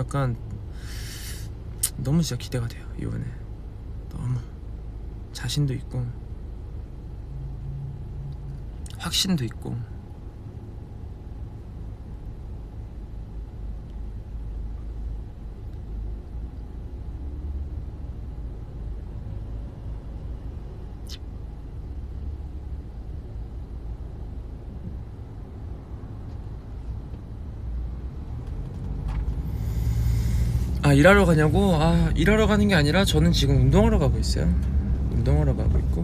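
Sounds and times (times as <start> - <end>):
car rumble from inside cabin: 26.2 - 36.0.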